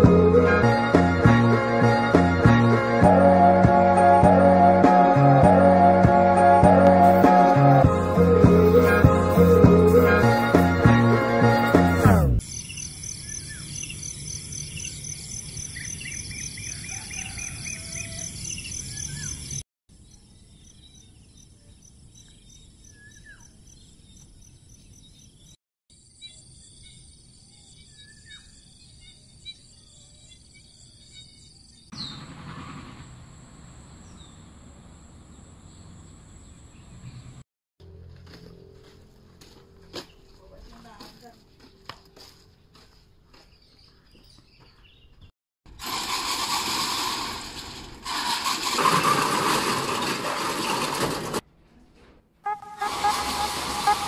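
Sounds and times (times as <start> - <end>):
insects trilling: 12.4 - 24.8, 32.9 - 37.2
bird chirps: 12.4 - 32.3.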